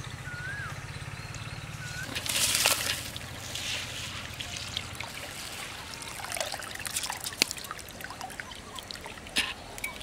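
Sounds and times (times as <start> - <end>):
water trickling and dripping: 2.1 - 10.0.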